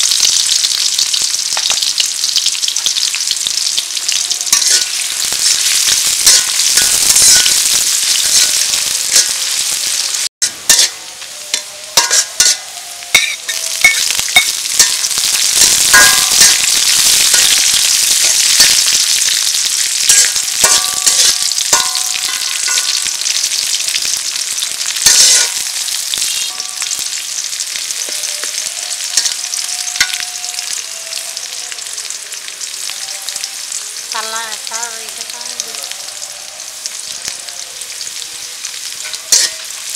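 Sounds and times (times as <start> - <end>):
onions sizzling in hot oil: 0.0 - 39.9
metal spatula scraping pan: 4.5 - 9.7, 10.4 - 27.4, 39.0 - 39.9.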